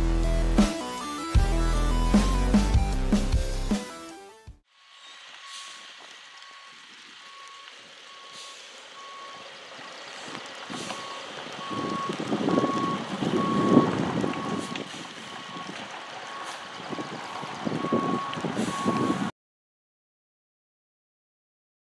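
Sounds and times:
diesel engine: 0.0s - 3.8s, 5.2s - 19.3s
truck reversing alarm beeping: 5.4s - 19.3s.

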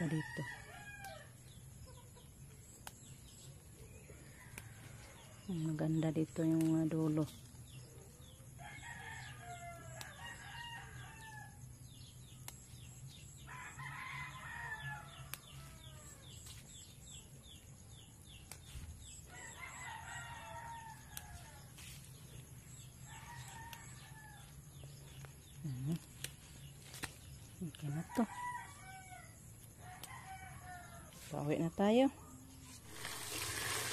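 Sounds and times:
faint rooster crowing: 4.1s - 5.5s, 8.6s - 11.6s, 13.5s - 16.4s, 19.2s - 22.0s, 23.0s - 24.9s, 27.9s - 31.3s.

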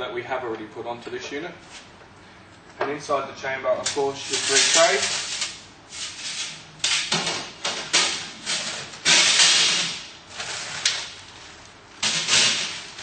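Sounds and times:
plastic bag rustling and crinkling: 4.1s - 5.5s.

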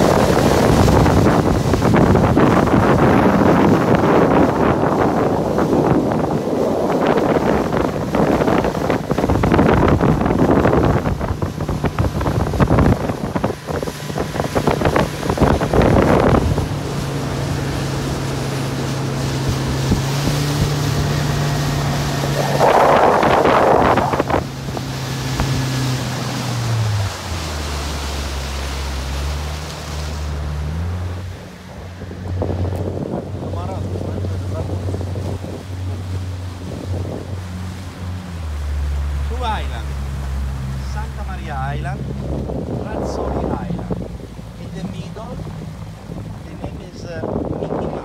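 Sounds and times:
boat engine running: 0.0s - 48.0s
water rushing past hull: 0.0s - 48.0s
wind buffeting microphone: 0.0s - 48.0s.

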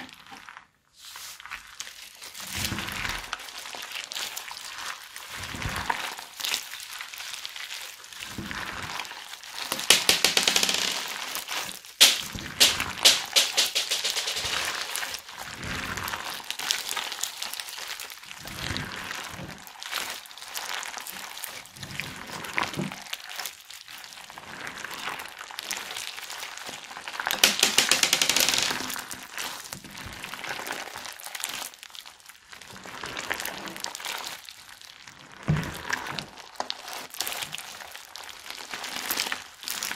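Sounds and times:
crunchy slime crackling and popping: 1.4s - 12.9s, 14.6s - 28.3s, 28.9s - 39.9s.

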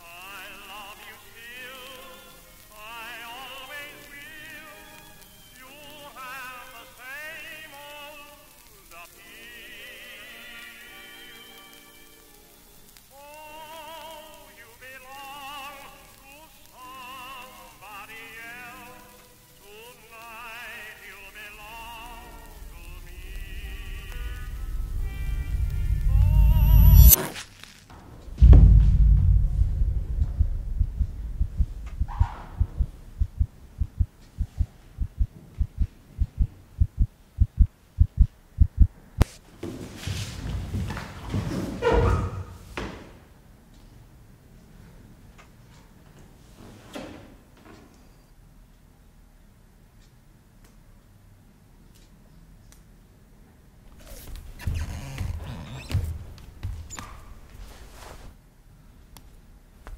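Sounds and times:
slow old-fashioned tune: 0.0s - 27.1s
rushing noise: 21.3s - 27.4s, 28.2s - 39.3s
heartbeat thumps: 22.4s - 27.1s, 28.3s - 39.3s
sharp click: 24.1s - 27.4s.

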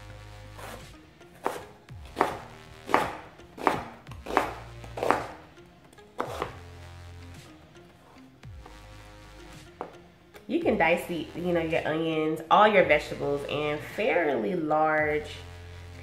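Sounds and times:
faint background music: 0.0s - 16.0s
knife chopping on cutting board: 0.6s - 0.8s, 1.4s - 5.4s, 6.2s - 6.6s.

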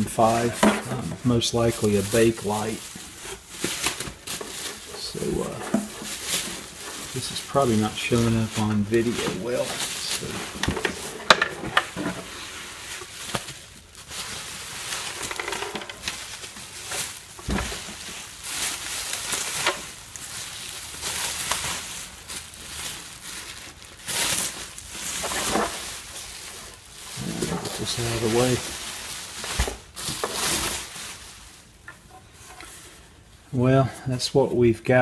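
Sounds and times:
bubble wrap rustling: 0.0s - 33.9s
dull thump: 17.4s - 17.9s.

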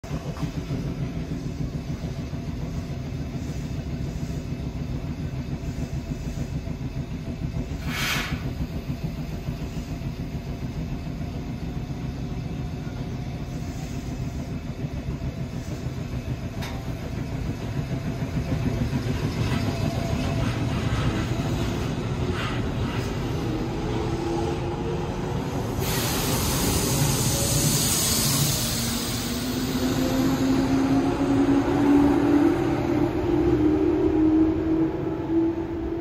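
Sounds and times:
train motor and wheel noise: 0.0s - 36.0s
air hiss: 7.7s - 8.8s, 25.6s - 30.4s.

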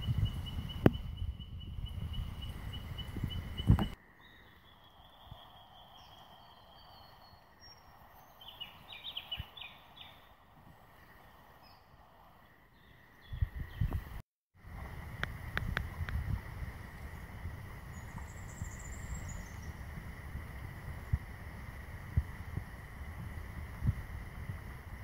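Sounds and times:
wind buffeting microphone: 0.0s - 4.0s, 5.0s - 25.0s
bird chirps: 0.0s - 10.3s, 17.9s - 19.8s
creek ambience: 0.0s - 25.0s.

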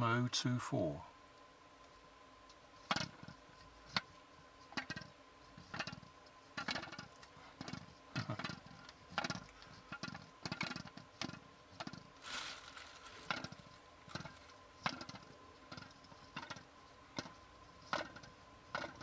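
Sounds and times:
rustle: 1.1s - 18.4s.

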